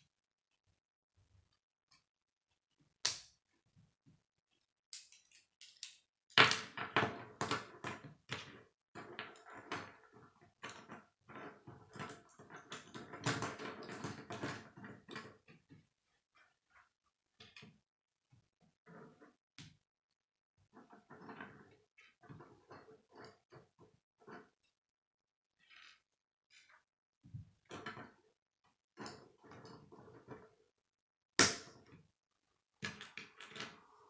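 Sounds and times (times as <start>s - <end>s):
plastic pieces clicking together: 4.9s - 6.0s.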